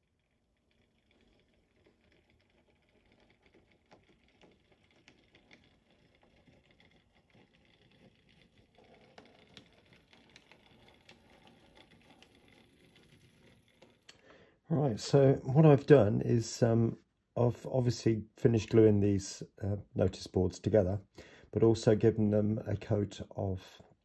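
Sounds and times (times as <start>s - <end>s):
model train motor hum: 0.6s - 14.1s.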